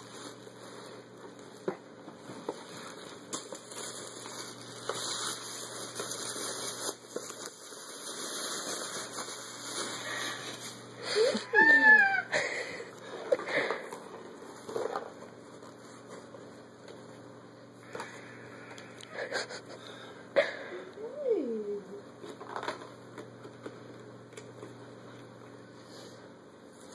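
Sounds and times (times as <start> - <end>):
plastic bag rustling: 0.0 - 16.6
voice crying out: 11.1 - 12.4.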